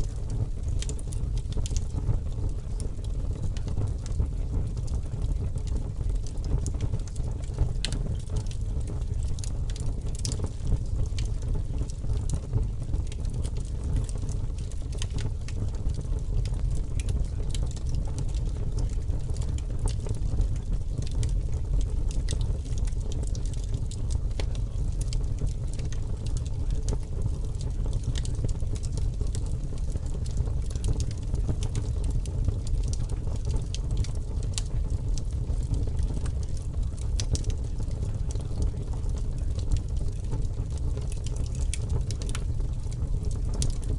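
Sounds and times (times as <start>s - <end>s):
faint crackles and ticks: 0.0s - 43.9s
steady low rumbling noise: 0.0s - 43.9s.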